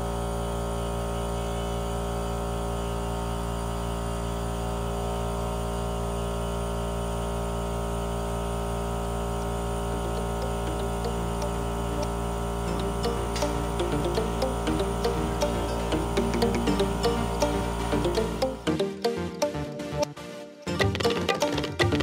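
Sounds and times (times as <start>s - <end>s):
sustained background music: 10.0s - 22.0s.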